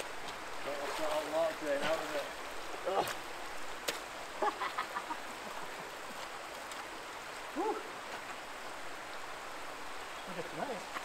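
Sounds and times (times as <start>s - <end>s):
water rushing over a weir: 0.0s - 11.0s.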